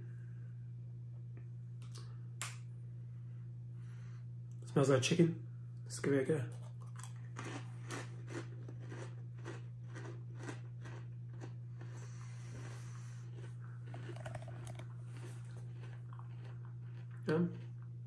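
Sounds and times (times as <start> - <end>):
steady low hum: 0.0 - 18.0
potato crisp crunching: 6.5 - 17.9.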